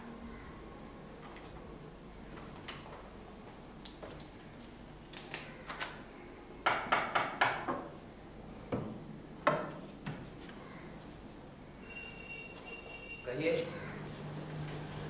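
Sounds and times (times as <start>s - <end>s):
knocking on wooden door: 6.6s - 7.9s.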